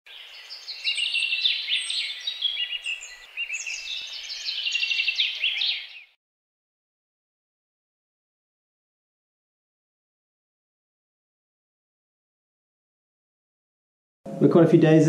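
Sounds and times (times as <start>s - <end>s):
faint forest ambience hiss: 0.1s - 6.1s
birds chirping and singing: 0.1s - 6.2s.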